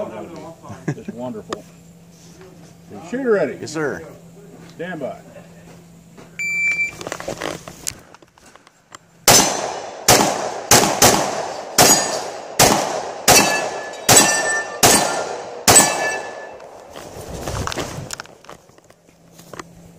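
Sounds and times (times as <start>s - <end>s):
shot timer beep: 6.4s - 6.9s
pistol shots echoing: 9.3s - 16.7s.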